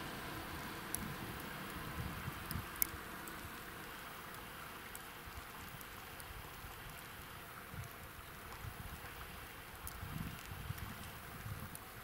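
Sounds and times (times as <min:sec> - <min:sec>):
wind buffeting microphone: 0:00.0 - 0:03.6, 0:09.9 - 0:12.0
river water hiss: 0:00.0 - 0:12.0
faint sharp ticks: 0:00.9 - 0:01.8, 0:02.4 - 0:03.5, 0:04.3 - 0:05.1, 0:09.8 - 0:11.9.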